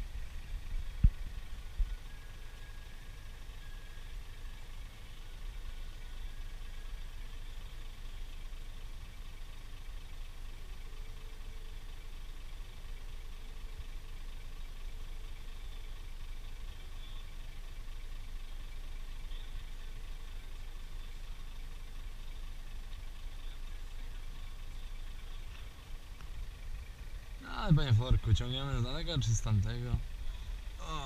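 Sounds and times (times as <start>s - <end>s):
diesel truck engine running: 0.0s - 31.0s.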